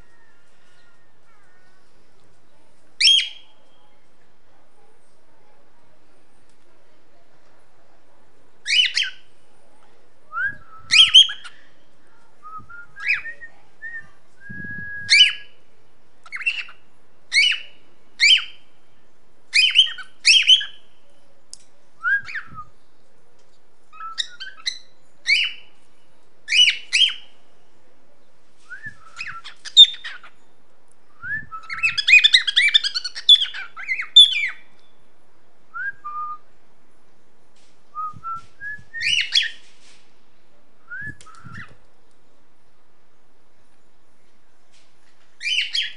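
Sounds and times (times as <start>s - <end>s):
cockatiel whistled chirps: 28.7s - 30.3s, 31.4s - 34.6s, 38.0s - 39.6s, 40.9s - 41.8s.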